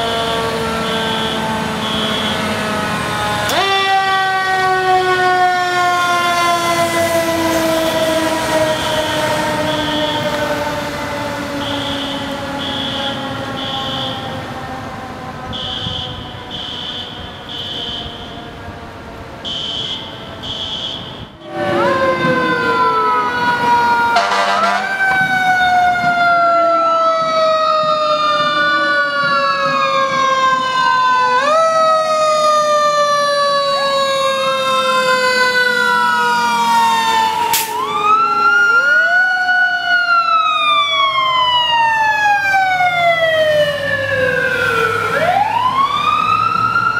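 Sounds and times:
siren winding down: 0.0s - 18.7s, 19.4s - 46.9s
fire engine wailing siren: 0.0s - 46.9s
sharp crack: 37.5s - 37.9s.

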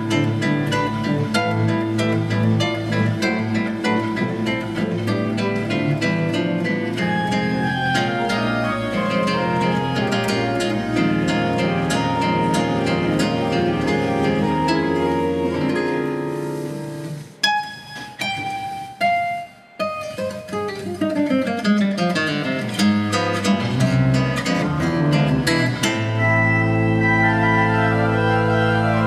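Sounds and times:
classical guitar: 0.0s - 29.0s
pipe organ chords: 26.0s - 29.0s.

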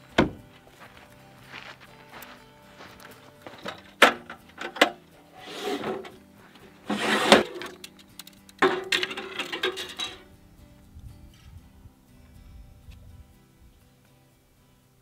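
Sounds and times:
soft background music: 0.0s - 15.0s
rod sections scraping out of tube: 5.3s - 7.9s.

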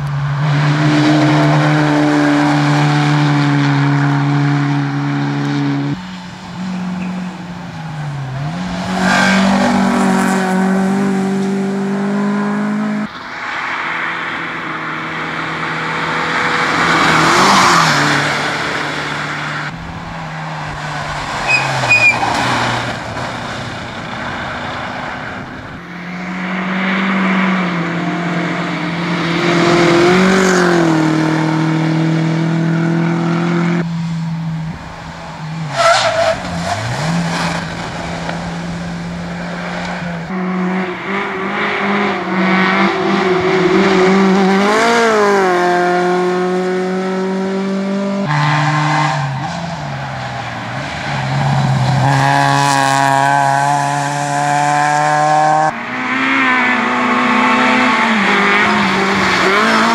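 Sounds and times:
rally car engines revving past: 0.0s - 59.9s.

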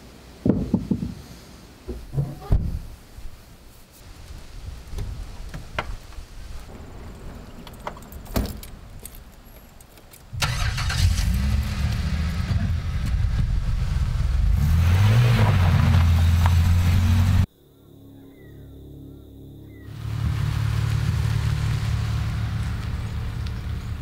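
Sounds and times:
car engine starting and running: 10.3s - 17.5s, 19.9s - 24.0s.

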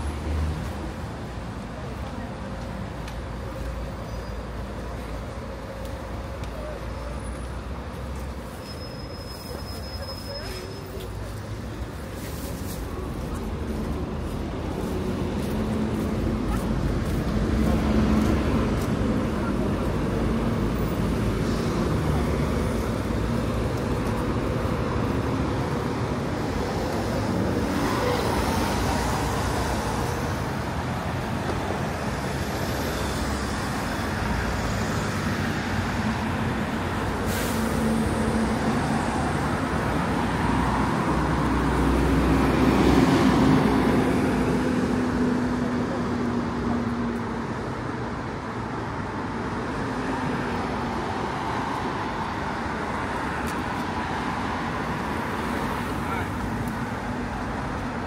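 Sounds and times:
city traffic engine and tyre noise: 0.0s - 58.0s.

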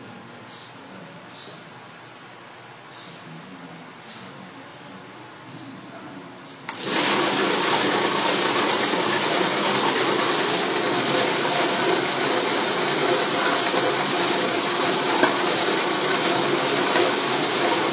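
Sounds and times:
motor whirring steadily: 6.7s - 17.9s.

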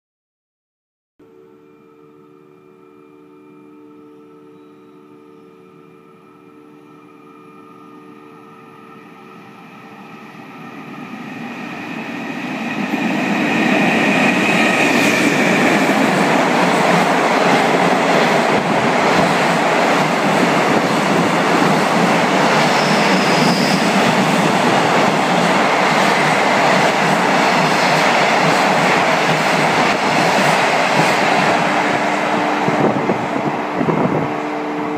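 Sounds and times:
freight train passing: 5.3s - 34.9s
train wheels on rails: 9.6s - 34.9s.

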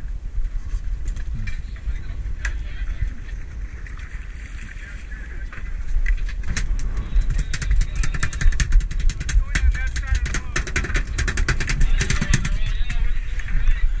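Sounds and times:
boat engine rumble: 0.0s - 14.0s
wind rumble on microphone: 0.0s - 14.0s
sharp clicks and knocks: 6.0s - 13.0s.

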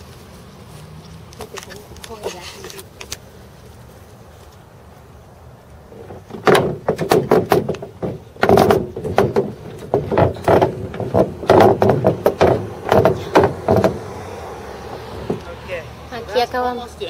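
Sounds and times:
loud knocks and clunks: 6.0s - 14.1s.

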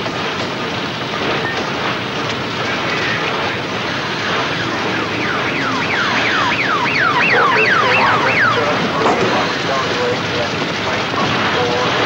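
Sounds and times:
electronic siren whooping: 4.2s - 10.2s.

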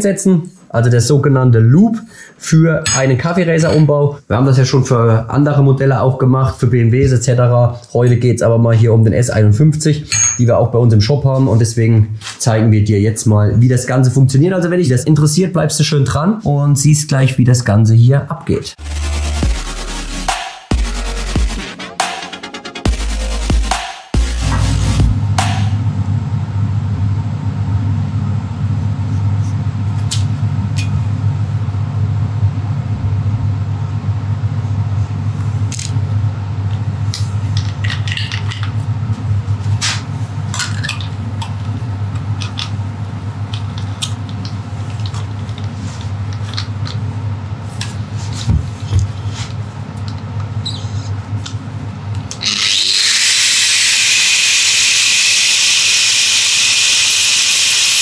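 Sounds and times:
low hum: 24.2s - 43.7s
angle grinder whining: 52.3s - 58.0s.

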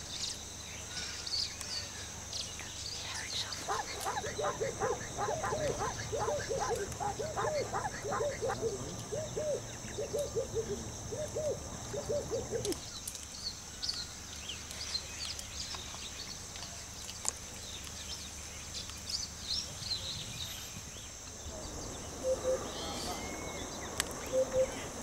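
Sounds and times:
high insect drone: 0.0s - 25.0s
small birds chirping: 0.0s - 25.0s
animal barking: 3.6s - 8.8s.

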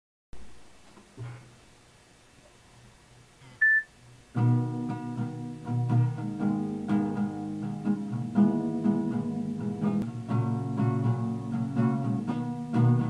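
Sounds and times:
short high beep: 3.6s - 3.9s
acoustic guitar picked chords: 3.6s - 13.0s.

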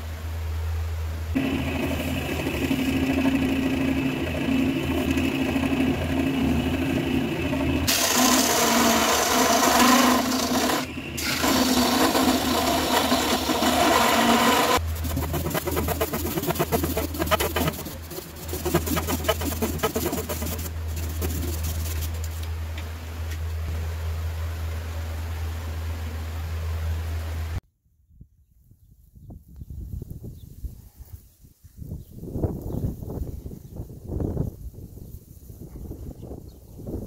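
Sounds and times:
wood lathe motor whine: 1.4s - 22.1s
hand sanding spinning wood: 1.4s - 22.5s
rapid scraping strokes: 1.4s - 22.5s
broom sweeping wood shavings: 7.9s - 22.5s.

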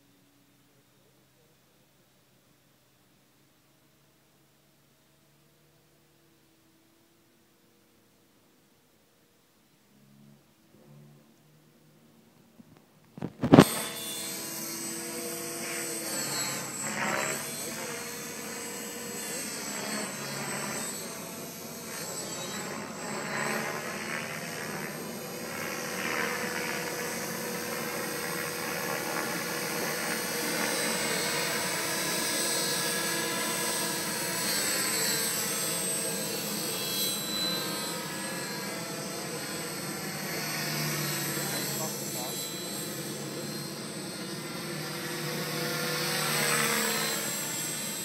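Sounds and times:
model helicopter whine: 9.9s - 48.0s.

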